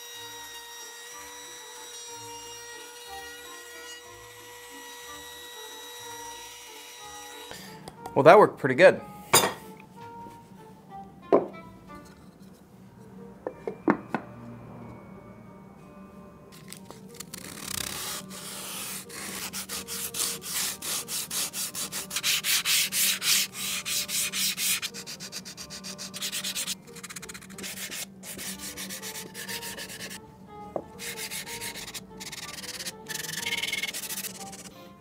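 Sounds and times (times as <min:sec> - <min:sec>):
sandpaper scratching on wood: 0:17.3 - 0:30.2, 0:31.0 - 0:34.7.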